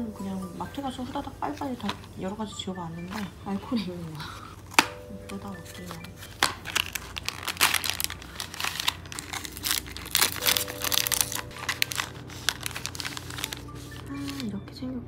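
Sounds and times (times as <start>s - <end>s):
foil packaging crinkling and tearing: 4.5s - 14.5s.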